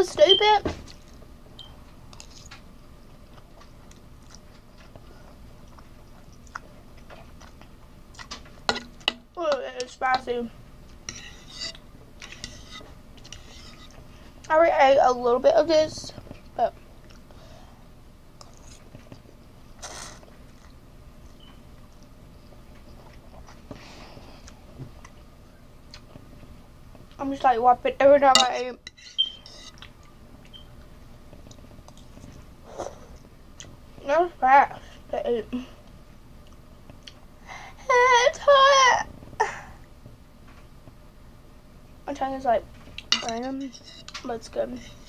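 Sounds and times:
person chewing noodles: 3.3s - 8.4s.

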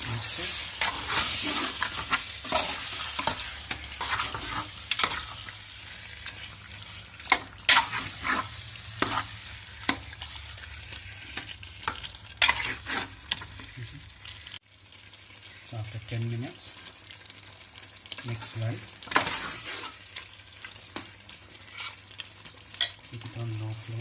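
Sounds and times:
low sizzle: 0.0s - 24.0s
ladle scraping a metal pot: 12.4s - 13.4s.

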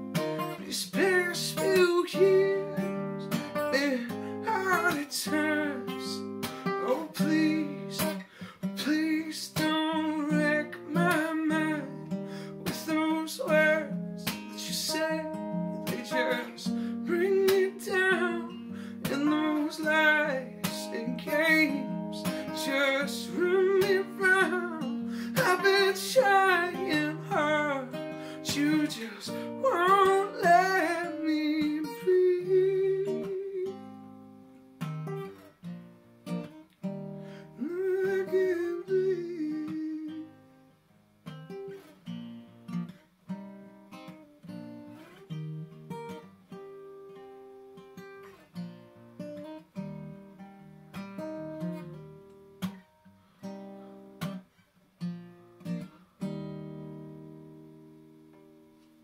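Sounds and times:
acoustic guitar playing: 0.0s - 59.0s
man singing: 0.1s - 34.0s, 37.4s - 40.5s.

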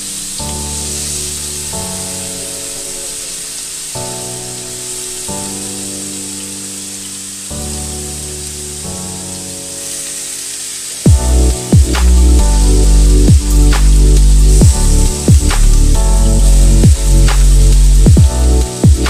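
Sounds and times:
background music of sustained chords: 0.0s - 19.0s
meat sizzling in a grill pan: 0.0s - 19.0s.

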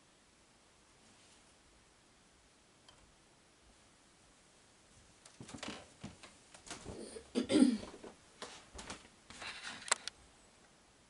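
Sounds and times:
rustling and handling noises: 4.9s - 10.2s
sharp clicks: 9.8s - 10.2s.

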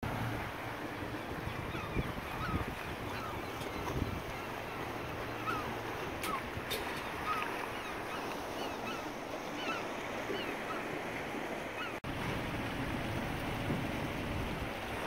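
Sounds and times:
surf lapping against rocky shore: 0.0s - 15.0s
birds chirping: 0.8s - 10.9s, 11.7s - 12.0s.

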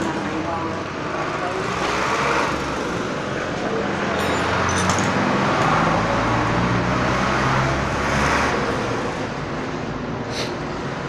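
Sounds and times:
tyre and road noise: 0.0s - 11.0s
vehicle engine droning by: 4.4s - 9.4s.

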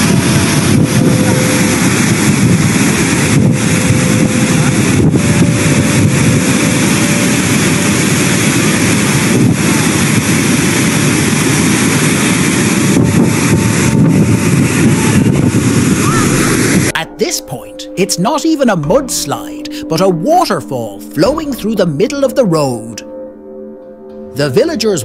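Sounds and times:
torrent of water and mud roaring: 0.0s - 16.9s.

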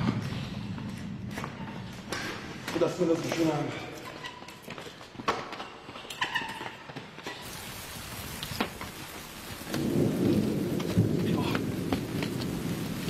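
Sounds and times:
rain falling: 7.4s - 13.0s
thunder rumbling: 7.5s - 13.0s.

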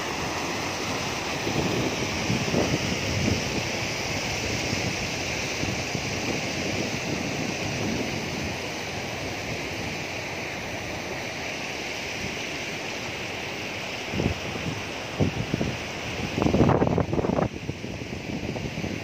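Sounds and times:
river water rushing: 0.0s - 19.0s
wind buffeting microphone: 1.1s - 10.2s, 14.1s - 19.0s.

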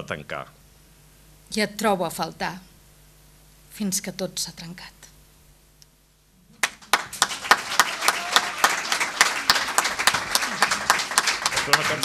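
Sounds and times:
audience applause: 6.6s - 12.0s.

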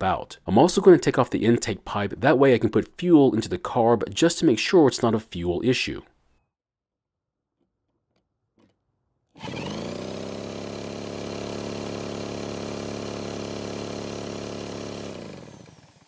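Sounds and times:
drill spinning: 9.3s - 16.0s.

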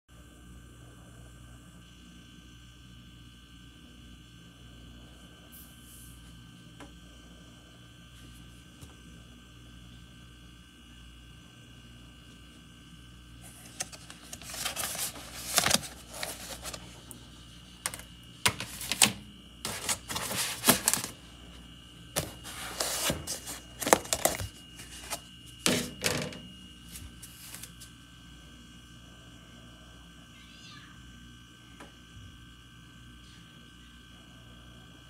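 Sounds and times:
faint steady hum: 0.1s - 35.0s
plastic container crinkling: 13.4s - 17.2s, 17.8s - 21.2s, 22.2s - 25.9s.

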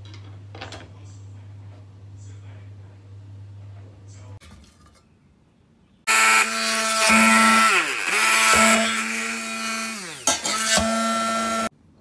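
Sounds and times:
stick blender motor humming: 6.1s - 11.7s.

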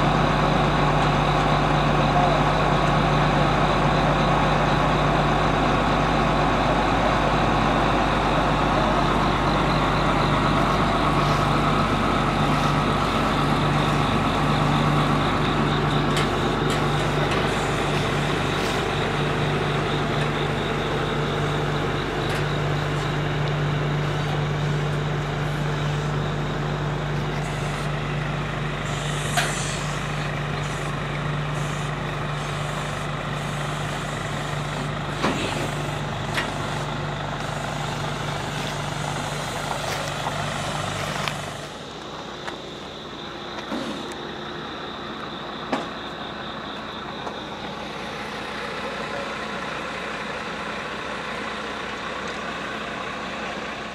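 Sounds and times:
heavy engine idling: 0.0s - 53.9s
short hiss: 28.9s - 30.0s.

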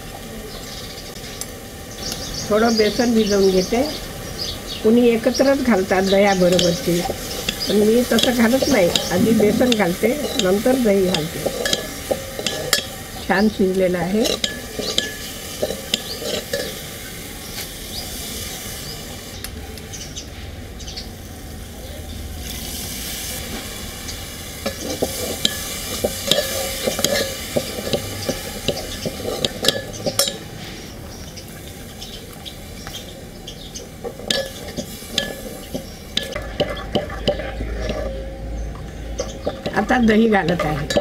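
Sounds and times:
sizzling hiss: 0.0s - 41.0s
spoon scraping metal pot: 6.5s - 13.0s, 14.2s - 16.8s, 24.6s - 30.5s, 34.0s - 38.3s, 39.2s - 41.0s.

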